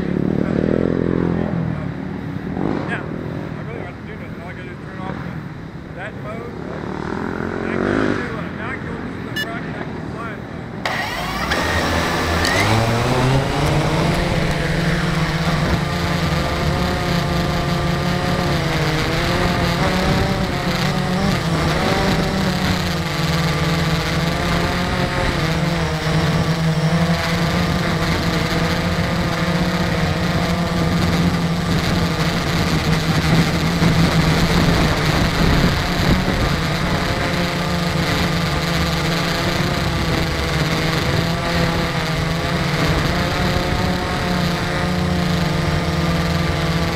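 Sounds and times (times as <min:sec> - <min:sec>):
drone motors buzzing: 0:10.8 - 0:46.9.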